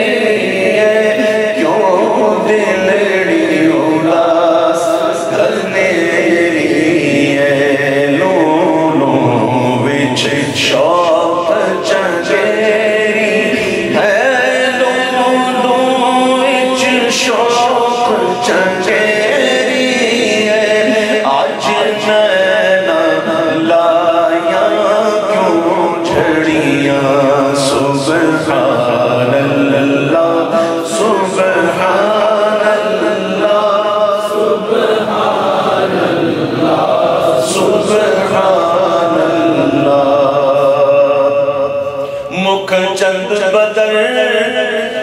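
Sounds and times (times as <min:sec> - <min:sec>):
man singing unaccompanied: 0:00.0 - 0:45.0.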